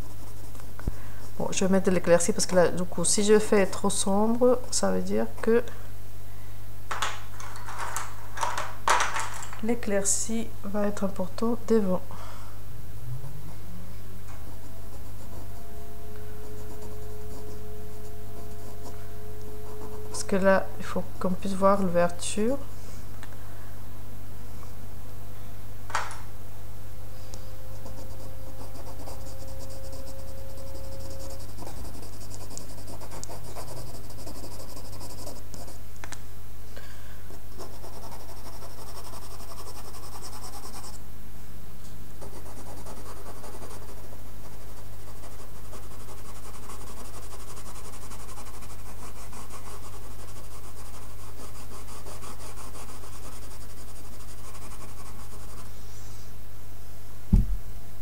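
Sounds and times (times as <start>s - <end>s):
low electrical hum: 0.0s - 58.0s
pencil scratching on paper: 16.4s - 19.0s, 19.6s - 20.5s, 27.8s - 35.8s, 37.3s - 41.0s, 42.2s - 55.7s.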